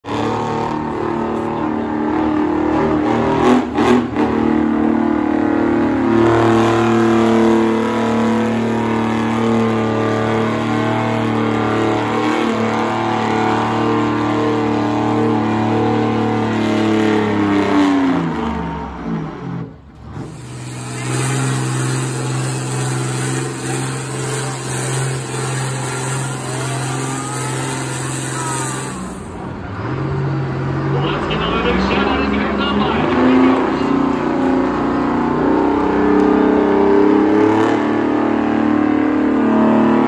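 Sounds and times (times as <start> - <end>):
diesel truck engine under load: 0.0 - 40.0.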